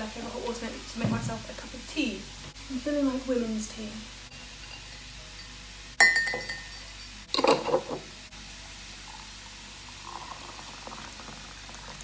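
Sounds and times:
metal infuser clinking on glass: 4.6 - 7.8
water pouring into a mug: 9.9 - 12.0.

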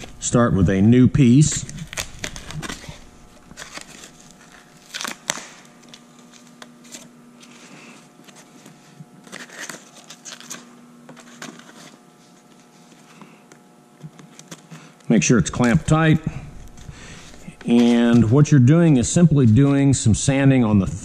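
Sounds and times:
sandpaper rustling and crinkling: 1.6 - 13.2.

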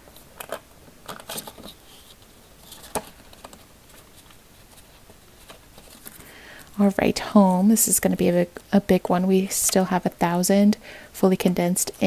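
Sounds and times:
plastic pages rustling: 0.0 - 6.7.

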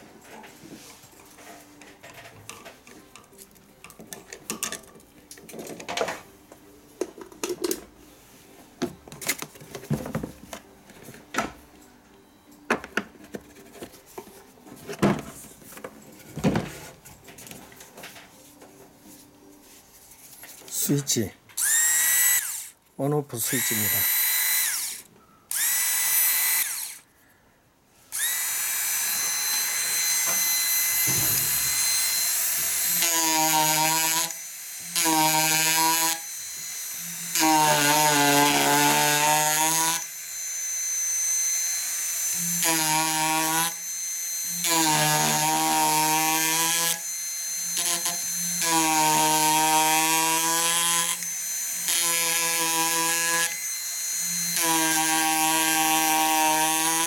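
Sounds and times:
carving tool motor whining: 21.6 - 22.8, 23.4 - 27.1, 28.1 - 57.0
chisel buzzing into wood: 21.6 - 22.8, 23.5 - 27.1, 28.2 - 57.0.

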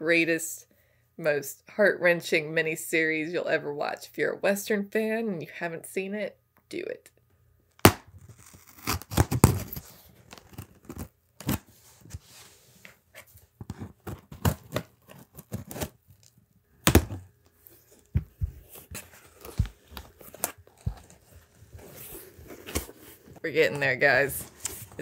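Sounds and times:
cardboard package tearing: 7.8 - 11.8, 13.7 - 17.2, 18.7 - 25.0.

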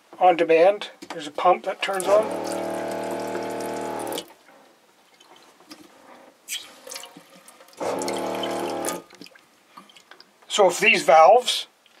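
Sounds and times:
water pump humming: 1.7 - 4.3, 6.5 - 9.3
water dripping in sink: 1.9 - 4.2, 6.9 - 10.2.

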